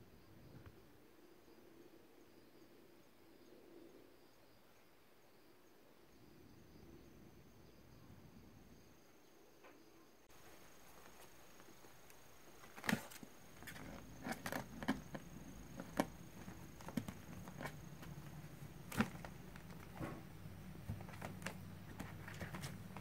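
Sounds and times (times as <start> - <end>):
faint low hum: 0.0 - 23.0
kittens scratching on cardboard: 10.4 - 23.0.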